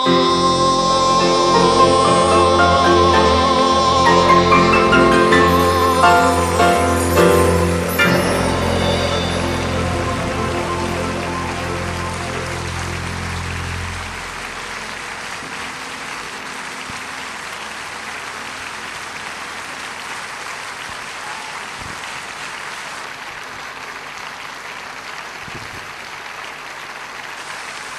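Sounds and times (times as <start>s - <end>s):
band's final chord ringing: 0.0s - 16.7s
concert audience applauding: 0.0s - 27.9s.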